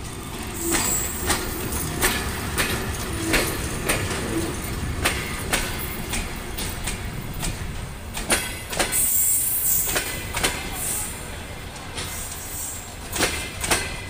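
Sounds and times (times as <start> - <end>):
train coaches rumbling past: 0.0 - 14.0
high-pitched wheel squeals: 0.6 - 1.7.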